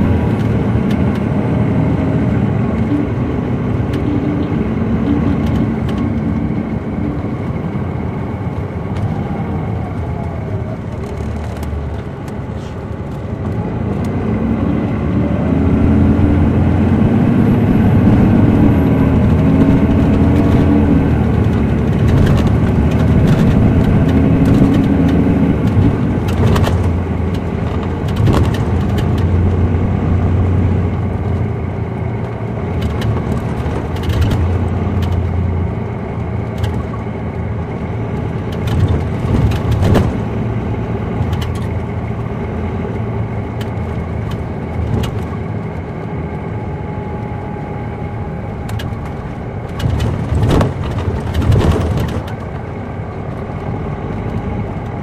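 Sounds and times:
diesel bus engine: 0:00.0 - 0:55.0
bus body knocks and rattles: 0:18.2 - 0:30.3, 0:32.8 - 0:35.3, 0:38.2 - 0:41.8, 0:48.8 - 0:52.8.

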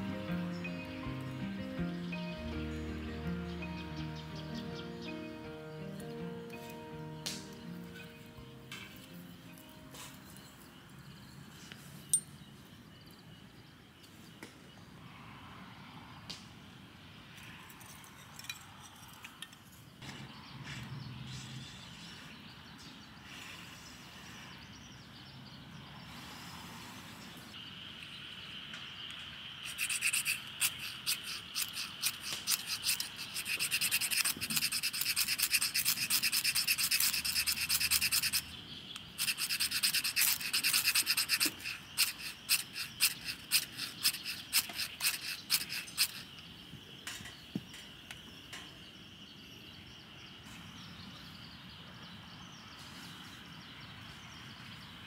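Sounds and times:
faint high insect drone: 0:21.6 - 0:55.0
cicada calling: 0:27.4 - 0:49.4.

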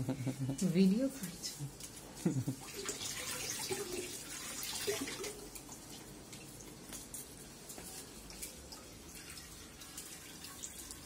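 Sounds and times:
water trickling from tap: 0:01.2 - 0:06.9, 0:08.1 - 0:11.0.

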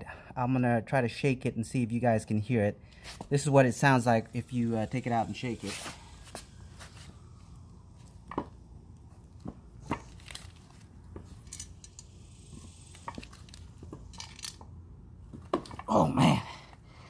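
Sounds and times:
loose bolts rattling metallically: 0:11.4 - 0:14.6.

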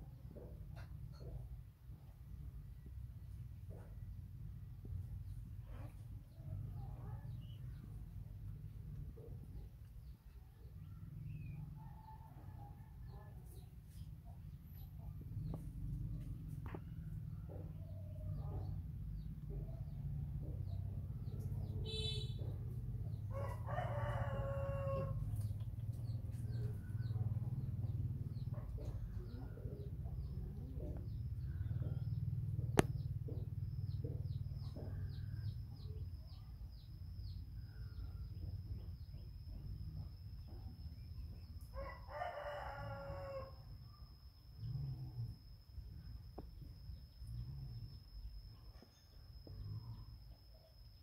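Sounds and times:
steady low hum: 0:00.0 - 0:51.0
rooster crowing: 0:23.3 - 0:25.4, 0:41.8 - 0:43.7.

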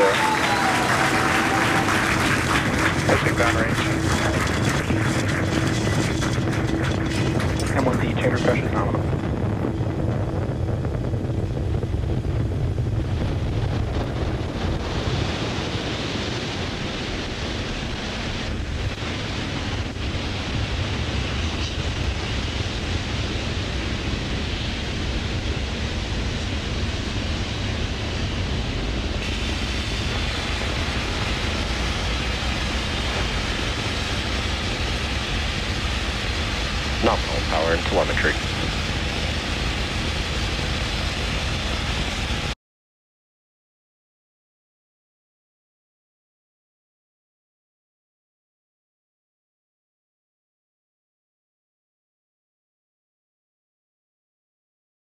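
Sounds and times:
deep rocket engine rumble: 0:00.0 - 0:42.6.

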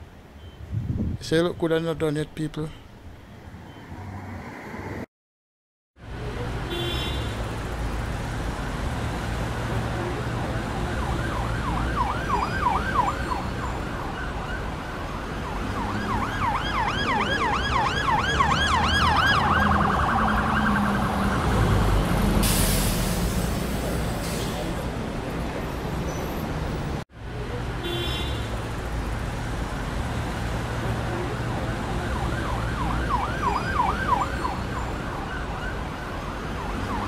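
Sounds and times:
low rumble of road traffic: 0:00.0 - 0:05.1, 0:06.0 - 0:37.0
electronic siren yelping: 0:10.8 - 0:21.6, 0:31.9 - 0:35.8.

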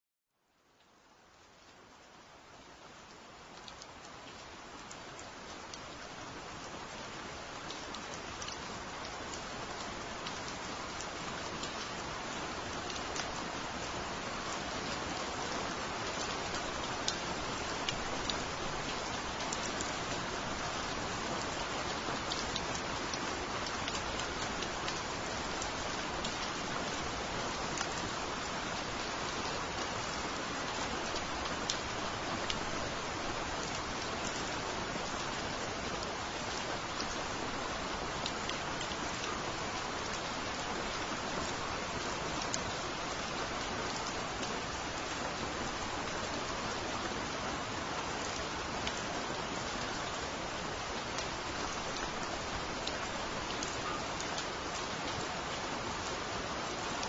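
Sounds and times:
rain falling on foliage: 0:00.3 - 0:57.0.

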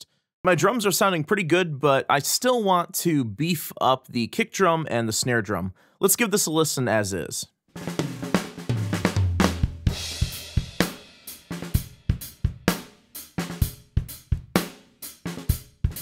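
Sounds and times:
acoustic drum kit groove: 0:07.7 - 0:16.0.

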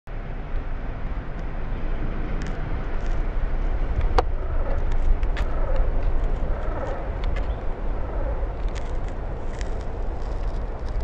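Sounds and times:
low outdoor rumble: 0:00.1 - 0:11.0.

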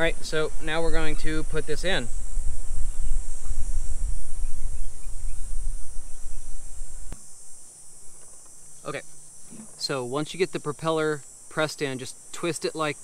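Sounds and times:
wind rumbling on microphone: 0:00.0 - 0:07.2
high buzz of insects: 0:00.0 - 0:13.0.

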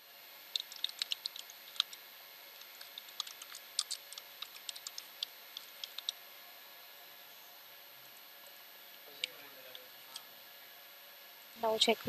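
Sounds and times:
computer keyboard typing: 0:00.5 - 0:02.0, 0:02.6 - 0:06.2.

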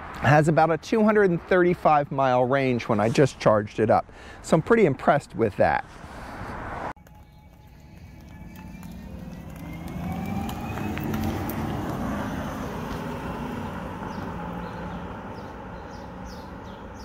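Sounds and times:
car driving past: 0:06.0 - 0:17.0.

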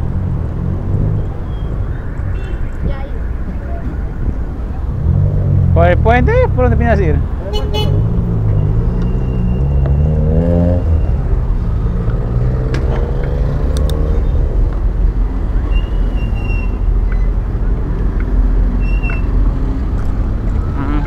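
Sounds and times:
car traffic: 0:00.0 - 0:21.0
brief high squeaks: 0:15.7 - 0:17.4, 0:18.8 - 0:19.3.

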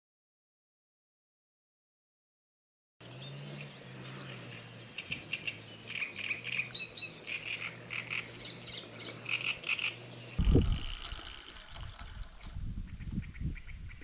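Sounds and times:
birds chirping: 0:03.0 - 0:14.0
steady low hum: 0:03.0 - 0:14.0.

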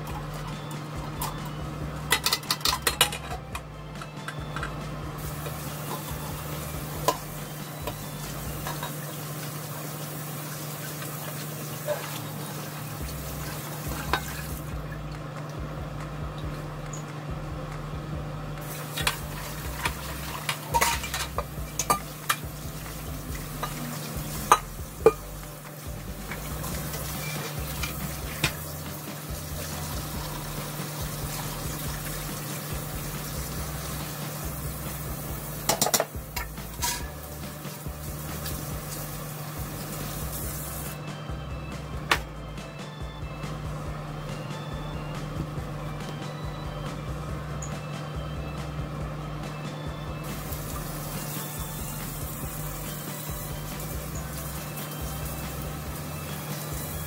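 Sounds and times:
pot and lid clinking on sink: 0:02.1 - 0:03.4, 0:19.8 - 0:22.5, 0:35.7 - 0:37.2
tap water running into sink: 0:05.2 - 0:14.9, 0:18.6 - 0:41.0, 0:50.3 - 0:57.0.

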